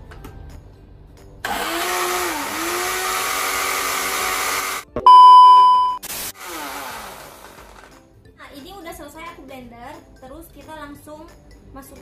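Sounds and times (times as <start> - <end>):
small blender motor running: 1.5 - 4.8, 6.4 - 8.0
loud high-pitched beep: 5.0 - 6.0.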